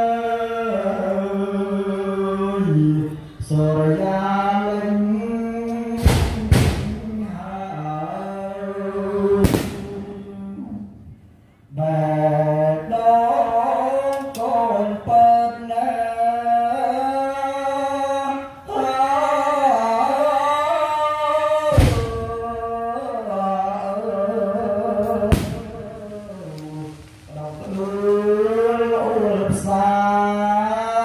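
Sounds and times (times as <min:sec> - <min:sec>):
slow sung melody: 0:00.0 - 0:31.0
firework bangs: 0:06.0 - 0:07.2, 0:09.4 - 0:10.3, 0:21.7 - 0:22.4, 0:25.1 - 0:29.8.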